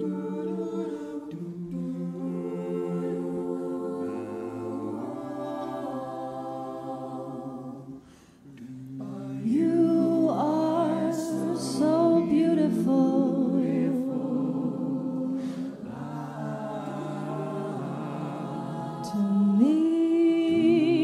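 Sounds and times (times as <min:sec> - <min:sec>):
choir singing backing chords: 0:00.0 - 0:21.0
woman singing lead melody: 0:09.4 - 0:15.4.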